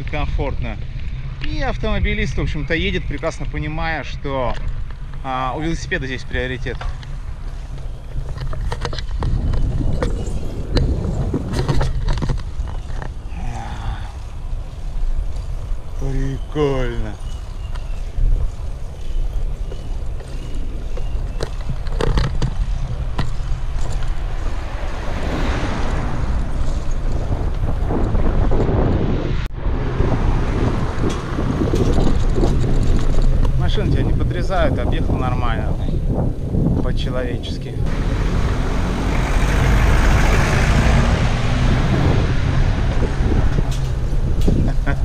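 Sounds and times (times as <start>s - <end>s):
low road rumble: 0.0s - 45.0s
wind buffeting microphone: 0.0s - 45.0s
pickup truck passing: 22.8s - 33.3s, 37.9s - 45.0s.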